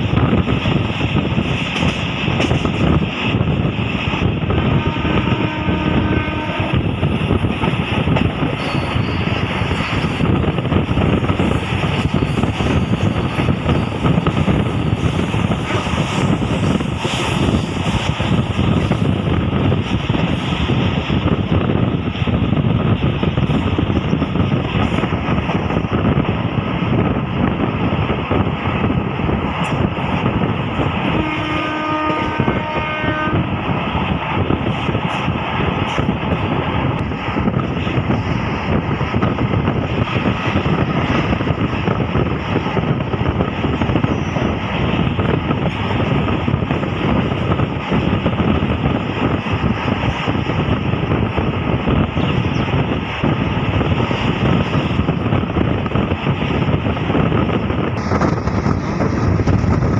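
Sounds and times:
train wheels and wind rushing: 0.0s - 59.9s
train horn: 4.6s - 6.9s, 31.1s - 33.6s.

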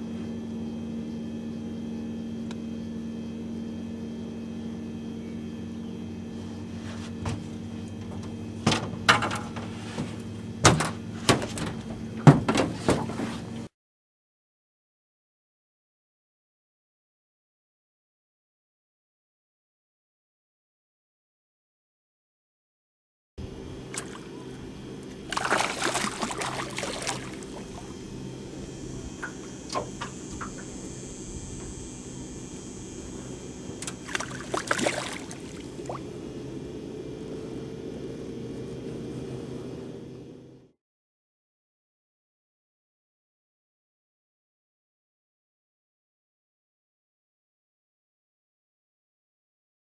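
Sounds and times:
steady low hum: 0.0s - 13.7s, 23.4s - 40.8s
knocks on boat deck: 10.6s - 13.3s
water splashing: 25.2s - 28.0s, 33.8s - 36.1s.

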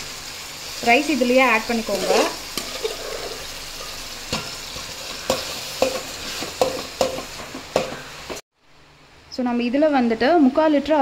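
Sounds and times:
rice sizzling in hot oil: 0.0s - 8.4s.

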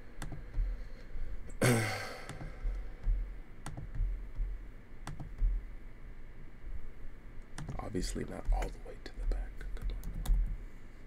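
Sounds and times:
computer mouse clicks: 0.2s - 0.4s, 3.6s - 4.0s, 5.0s - 5.4s, 7.4s - 7.9s, 9.8s - 10.6s
person sighing: 1.5s - 2.8s.

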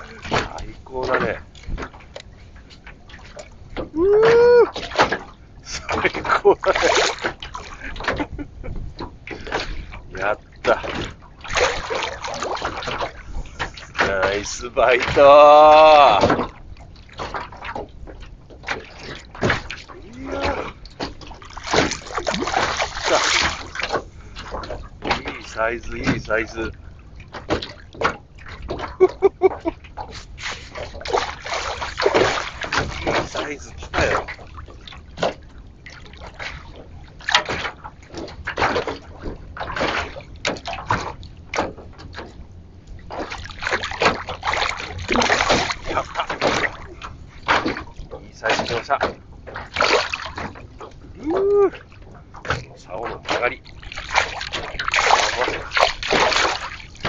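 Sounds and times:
fish splashing water: 5.9s - 8.2s, 10.6s - 14.3s, 15.9s - 26.2s, 27.0s - 42.3s, 43.0s - 57.0s
fish splashing at the surface: 6.2s - 7.8s, 10.8s - 14.1s, 21.4s - 25.4s, 30.4s - 34.5s, 43.1s - 47.8s, 53.3s - 57.0s.

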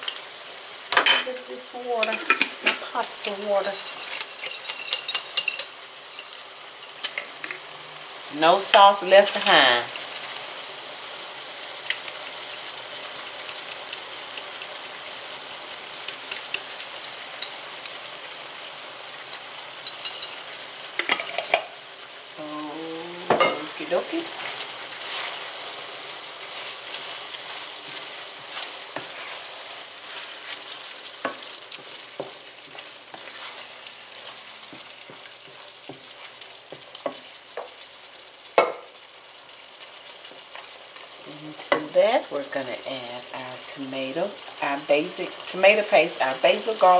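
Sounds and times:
sauce sizzling and bubbling: 0.0s - 46.9s
wooden spoon scraping pan: 23.6s - 37.8s.

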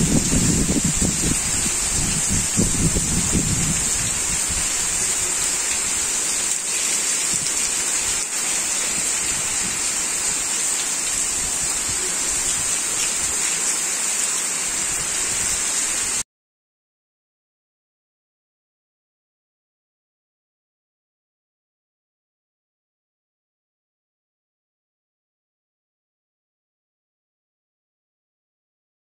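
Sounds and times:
heavy rain falling: 0.0s - 16.2s.

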